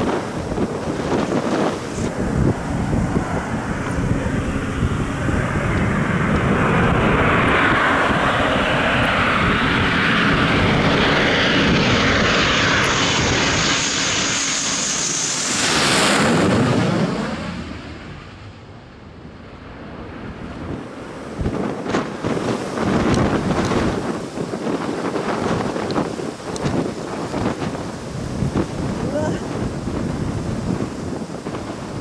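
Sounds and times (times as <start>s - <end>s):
fighter jet passing overhead: 0.0s - 32.0s
high jet engine whine: 0.0s - 32.0s.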